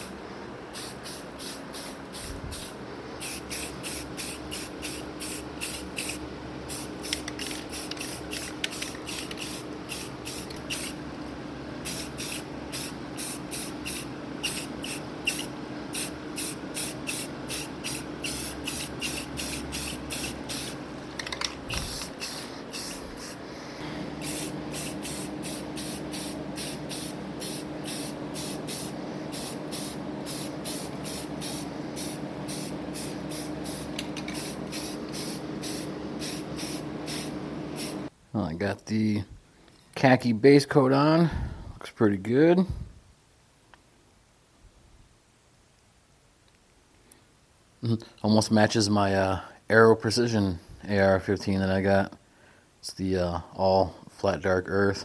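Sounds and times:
steady low hum: 0:00.0 - 0:43.3
spray paint can hissing: 0:00.7 - 0:11.0, 0:11.8 - 0:23.4, 0:24.2 - 0:38.1.

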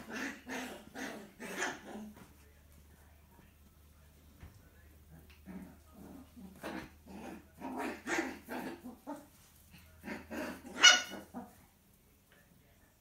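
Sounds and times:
dogs growling and barking: 0:00.0 - 0:02.3, 0:05.0 - 0:11.6
puppy yelp: 0:10.7 - 0:11.3.

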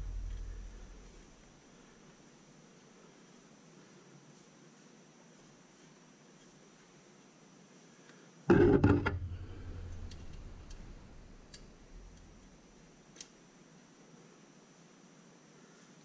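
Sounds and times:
faint light clicks: 0:09.9 - 0:13.4.

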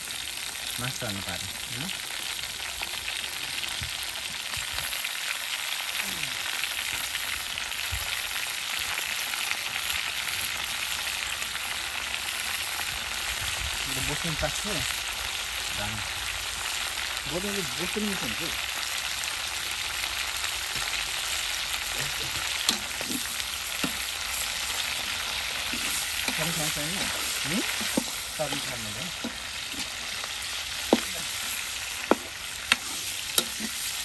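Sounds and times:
food sizzling in hot oil: 0:00.0 - 0:34.0.

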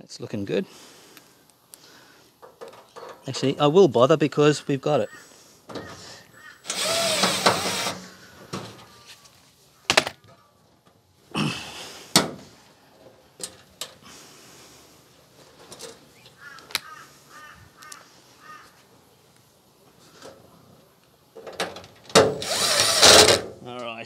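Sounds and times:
cordless drill driving screws: 0:06.6 - 0:08.1, 0:22.3 - 0:23.5.

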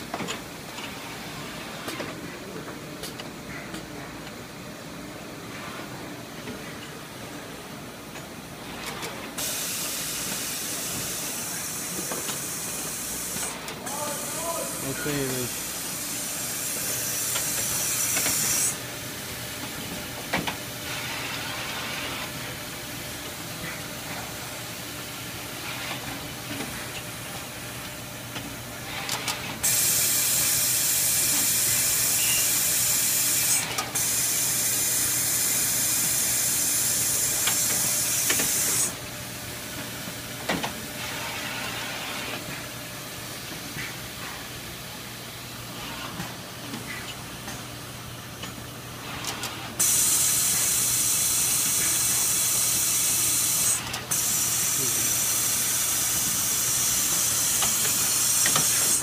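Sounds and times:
loud hiss: 0:09.4 - 0:18.8, 0:49.8 - 0:59.0.

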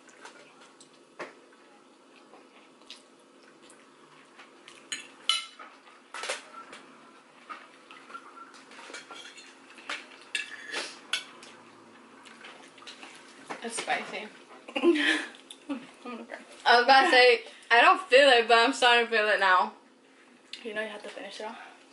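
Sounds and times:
forks clinking against plates: 0:04.9 - 0:06.4, 0:08.7 - 0:11.4.

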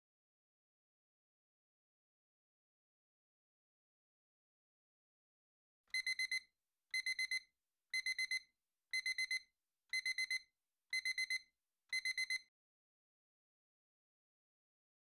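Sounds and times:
phone alarm beeping: 0:05.9 - 0:06.4, 0:07.0 - 0:07.4, 0:08.0 - 0:08.4, 0:09.0 - 0:09.4, 0:10.0 - 0:12.5.

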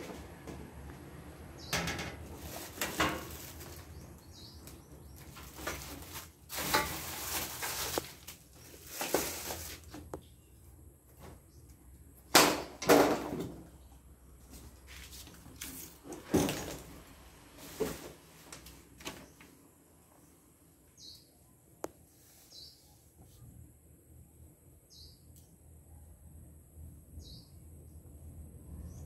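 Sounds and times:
cardboard and plastic rustling: 0:02.2 - 0:10.2, 0:14.5 - 0:19.6
frame pieces knocking: 0:12.3 - 0:13.6.

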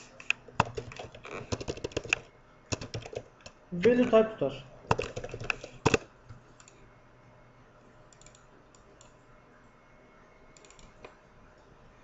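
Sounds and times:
keyboard keystrokes: 0:00.6 - 0:04.1, 0:04.9 - 0:06.8
faint mouse clicks: 0:08.1 - 0:09.2.

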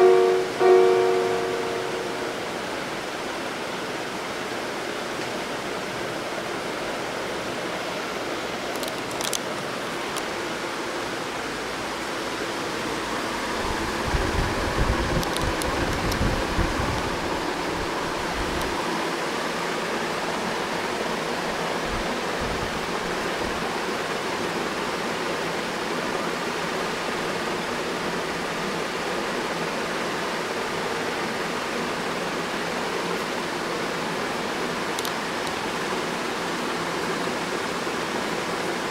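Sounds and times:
steady rushing noise: 0:00.0 - 0:26.0.

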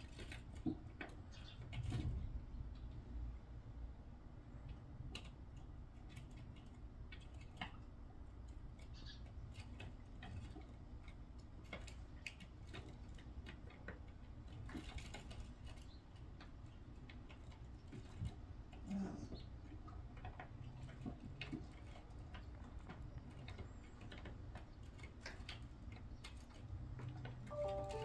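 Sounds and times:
beaks pecking in light taps: 0:04.6 - 0:27.4
sparrows chirping: 0:08.9 - 0:09.4.

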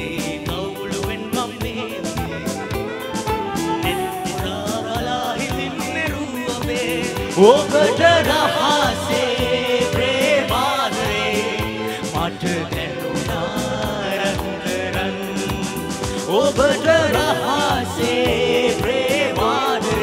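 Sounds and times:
live band music: 0:00.0 - 0:20.0
man singing into a microphone: 0:00.0 - 0:20.0
steady drum beat: 0:00.0 - 0:20.0.

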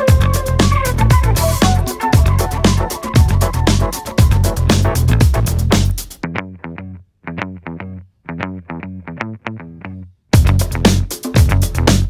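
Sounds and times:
funk disco music with drum beat: 0:00.0 - 0:06.2, 0:10.4 - 0:12.0.

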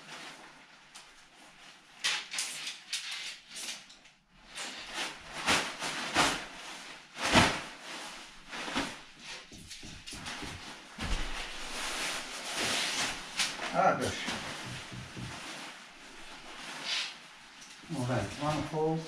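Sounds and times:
nylon tent fabric rustling: 0:04.4 - 0:19.0.

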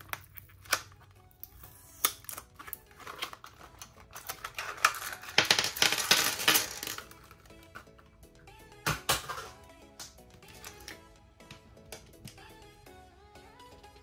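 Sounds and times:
plastic packaging opened: 0:00.0 - 0:07.5.

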